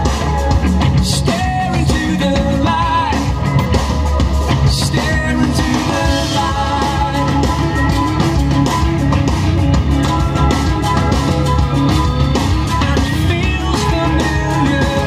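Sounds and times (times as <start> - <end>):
rock song with singer: 0.0 - 15.0.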